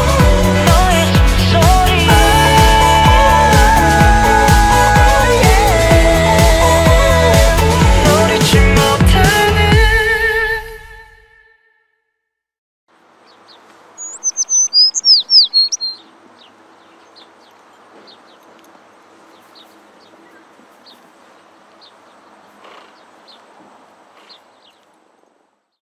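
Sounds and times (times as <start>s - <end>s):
small birds chirping: 13.0s - 25.8s.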